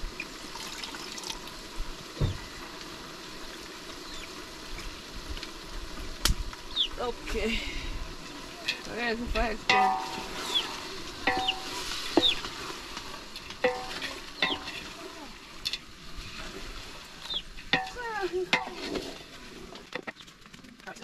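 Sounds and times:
fish sizzling in a pot: 0.0s - 20.2s
stick knocking on metal pot: 9.4s - 12.5s, 13.7s - 14.9s, 17.8s - 19.1s.

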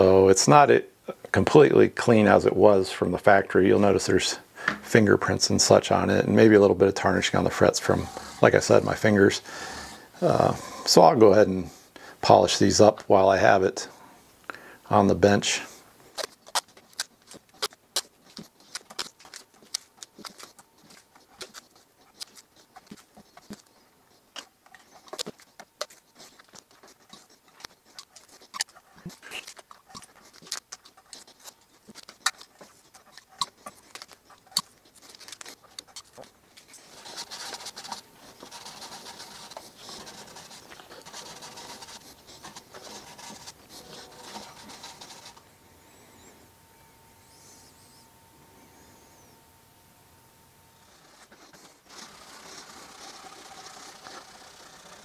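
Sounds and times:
scratchy rubbing: 7.1s - 11.0s, 15.6s - 45.4s, 50.9s - 55.0s
tape tearing and clicking: 16.1s - 23.7s.

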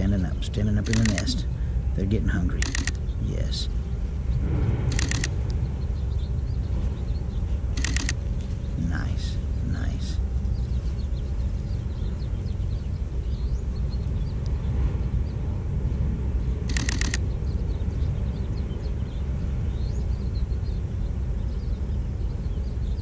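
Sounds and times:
steady low rumble: 0.0s - 23.0s
faint high chirps: 4.9s - 8.2s.

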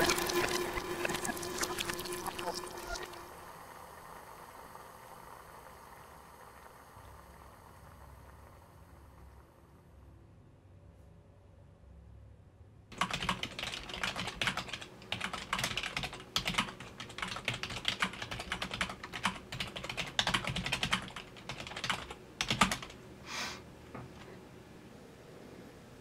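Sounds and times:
computer keyboard typing: 0.0s - 3.2s, 12.9s - 23.0s.

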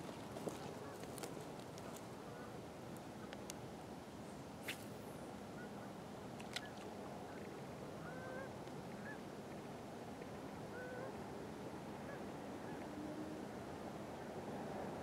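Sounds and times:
open air hiss: 2.7s - 6.2s.

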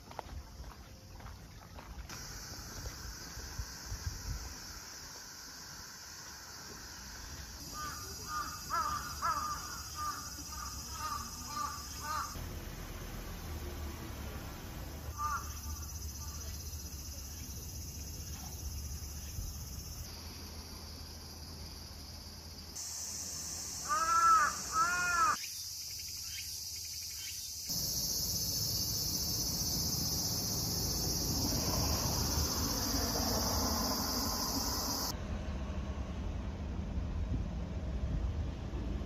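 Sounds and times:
insects shrilling: 2.2s - 12.4s, 22.8s - 35.1s.

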